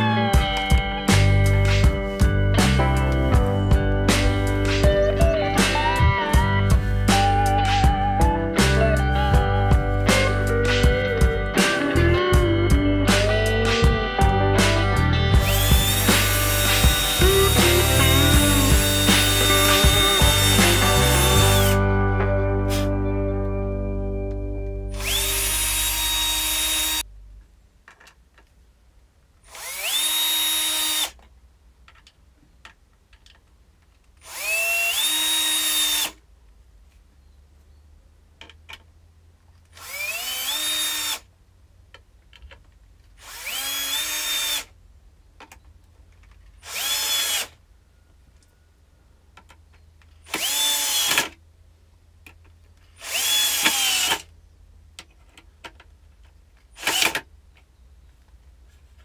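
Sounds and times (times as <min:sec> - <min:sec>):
power drill running: 0:15.4 - 0:21.8, 0:25.0 - 0:27.0, 0:29.5 - 0:31.2, 0:34.2 - 0:36.2, 0:39.8 - 0:41.2, 0:43.2 - 0:44.7, 0:46.6 - 0:47.5, 0:50.3 - 0:51.3, 0:53.0 - 0:54.3, 0:56.8 - 0:57.2.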